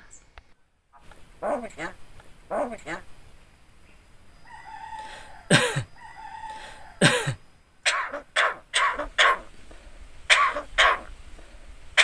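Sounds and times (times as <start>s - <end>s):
short bird calls: 3.9s - 9.5s, 10.3s - 11.1s.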